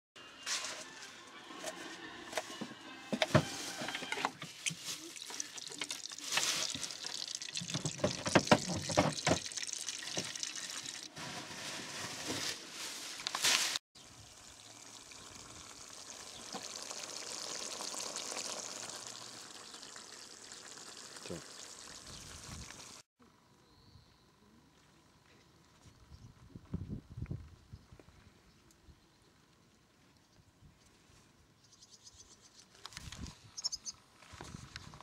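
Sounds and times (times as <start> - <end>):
wine pouring into glass: 5.2 - 11.1.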